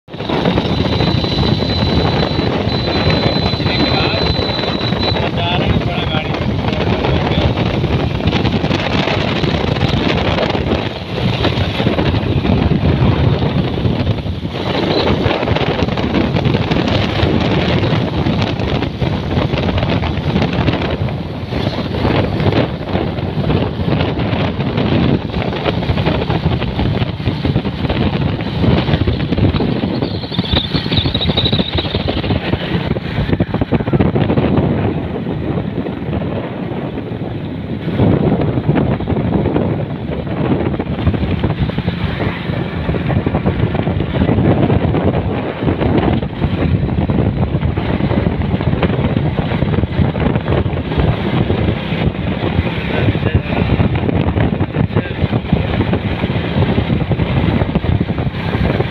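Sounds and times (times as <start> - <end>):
motorcycle engine running: 0.0 - 58.9
road rumble: 0.0 - 58.9
wind buffeting microphone: 0.0 - 58.9.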